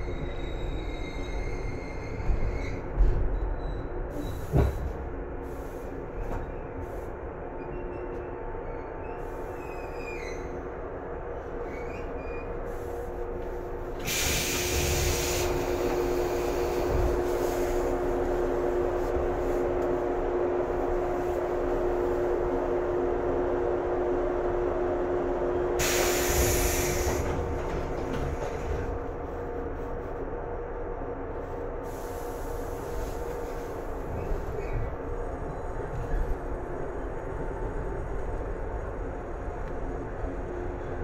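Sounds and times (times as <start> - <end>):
electric train equipment hum: 10.2 - 41.0
hissing air bursts: 14.0 - 17.8, 25.8 - 27.3.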